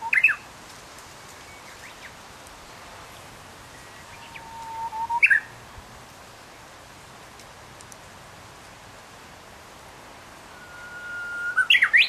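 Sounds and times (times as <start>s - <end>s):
songbird singing: 0.0s - 0.5s, 1.1s - 5.8s, 10.3s - 12.0s.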